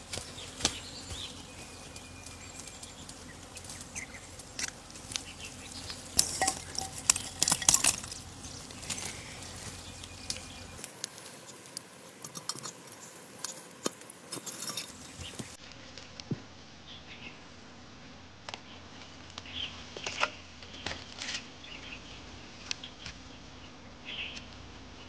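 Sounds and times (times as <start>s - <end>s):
charcoal clinking into clay stove: 0.1s - 15.6s.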